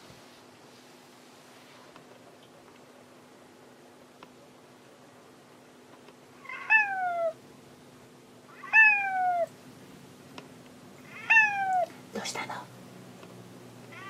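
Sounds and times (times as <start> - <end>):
cat meowing: 6.4 - 7.4, 8.5 - 9.5, 11.0 - 11.9.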